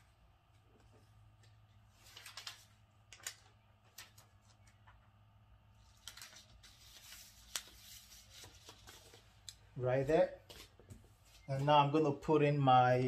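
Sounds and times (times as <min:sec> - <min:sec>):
paper and plastic rustling: 0:01.9 - 0:04.9, 0:05.8 - 0:09.5.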